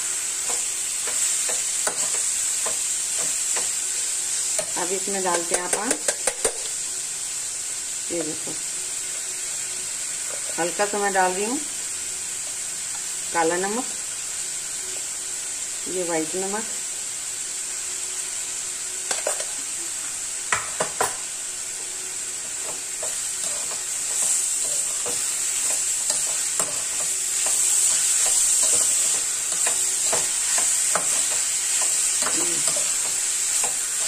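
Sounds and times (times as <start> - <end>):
vegetables sizzling in oil: 0.0 - 34.0.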